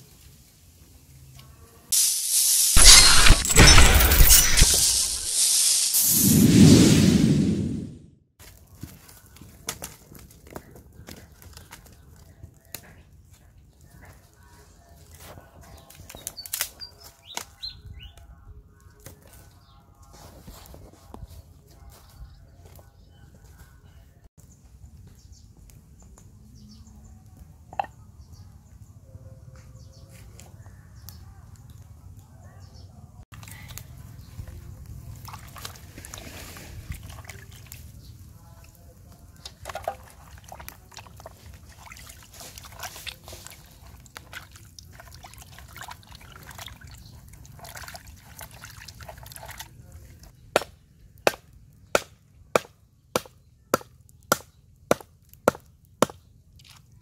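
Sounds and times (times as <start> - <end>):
water sloshing in plastic basin: 35.2 - 37.9, 39.5 - 49.7.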